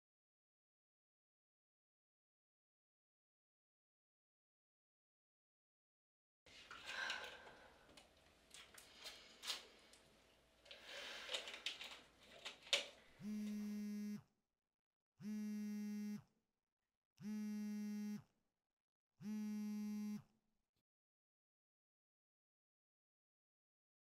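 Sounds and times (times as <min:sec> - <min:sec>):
sharp clicks of objects handled: 0:06.8 - 0:13.1
smartphone buzzing: 0:13.2 - 0:14.2, 0:15.2 - 0:16.2, 0:17.2 - 0:18.3, 0:19.2 - 0:20.3.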